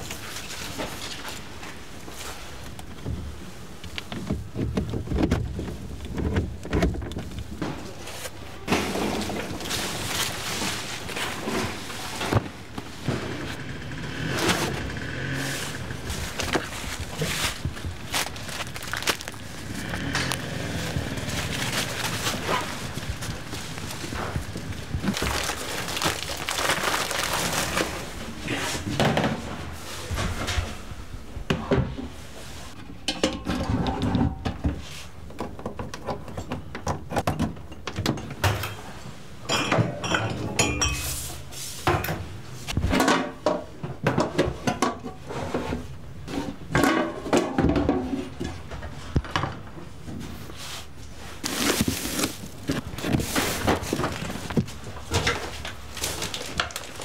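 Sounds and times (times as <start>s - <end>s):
plastic rustling: 0.0s - 13.1s, 15.4s - 29.0s, 50.1s - 57.0s.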